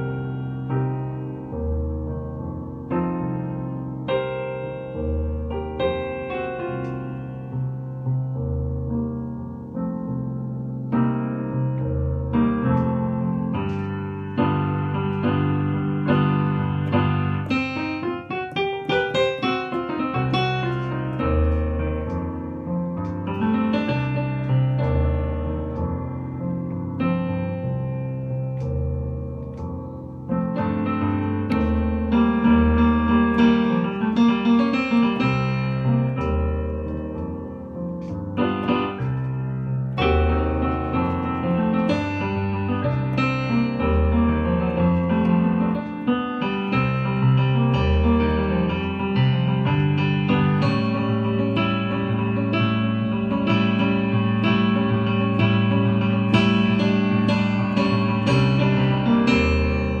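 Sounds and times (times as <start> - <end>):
digital keyboard chords and bass: 0.0 - 60.0.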